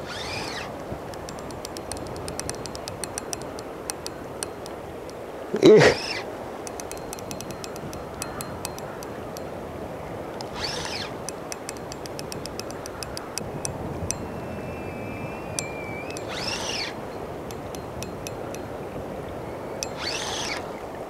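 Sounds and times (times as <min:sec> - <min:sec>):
short rising and falling squeals: 0:00.0 - 0:02.5, 0:05.6 - 0:06.3, 0:10.5 - 0:11.3, 0:14.1 - 0:17.2, 0:19.4 - 0:20.8
fishing reel ticking: 0:00.0 - 0:05.2, 0:06.0 - 0:09.7, 0:10.3 - 0:20.8
tidal current rushing: 0:00.0 - 0:21.0.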